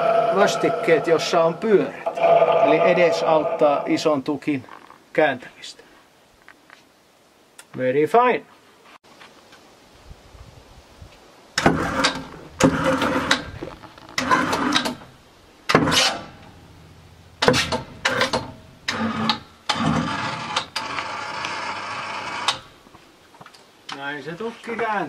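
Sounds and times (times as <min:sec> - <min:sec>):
winch reeling in cable: 0:00.0 - 0:03.9.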